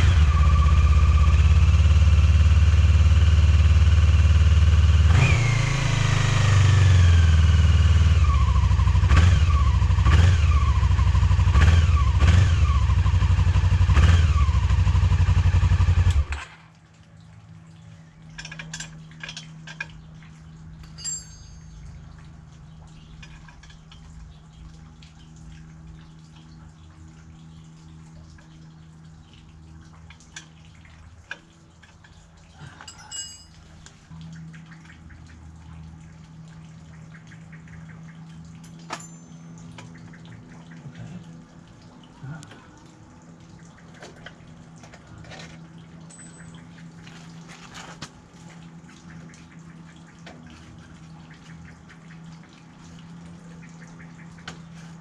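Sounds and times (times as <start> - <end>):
steady low hum: 16.7 - 55.0
hand tools clinking on metal: 20.8 - 21.9, 32.7 - 33.8, 38.6 - 39.8, 45.2 - 47.2.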